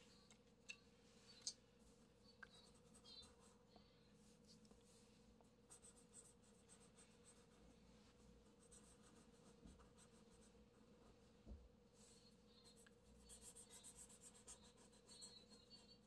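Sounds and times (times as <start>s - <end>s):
marker scratching on paper: 12.7s - 15.8s.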